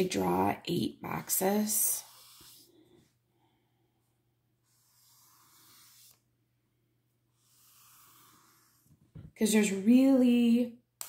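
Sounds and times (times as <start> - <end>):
marker scratching on paper: 1.2 - 3.2, 4.6 - 6.3, 7.3 - 9.1.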